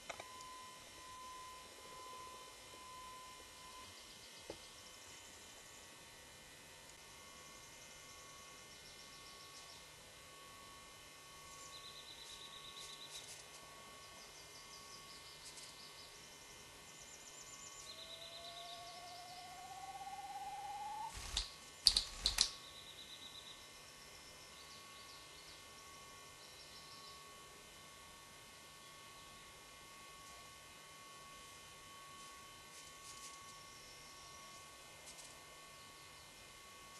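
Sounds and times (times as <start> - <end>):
faint steady hum: 0.0 - 36.9
slowly rising whistle: 0.2 - 4.0, 17.7 - 21.4
songbirds singing: 7.4 - 10.0, 11.4 - 13.2, 14.0 - 27.3
grouse wing claps: 21.1 - 22.6.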